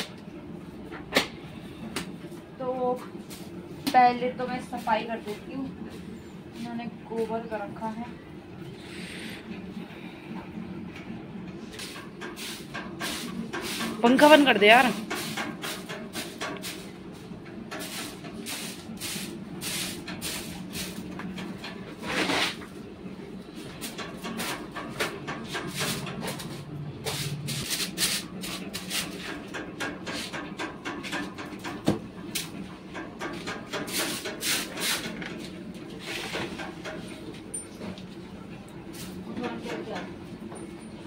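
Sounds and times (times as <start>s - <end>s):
broom sweeping on concrete: 17.8s - 21.0s, 22.0s - 22.6s, 25.7s - 29.2s, 33.9s - 35.0s, 35.9s - 36.4s.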